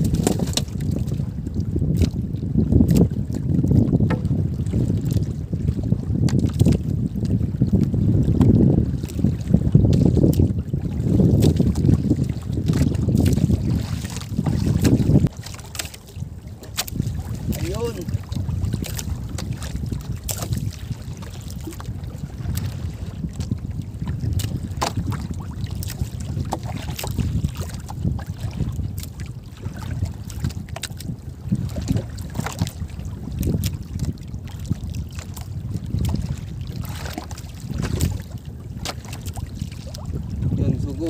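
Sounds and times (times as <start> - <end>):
water splashes: 0.0 - 2.2, 2.8 - 6.9, 7.6 - 41.0
water lapping against boat hull: 0.0 - 41.0
wind buffeting microphone: 0.0 - 41.0.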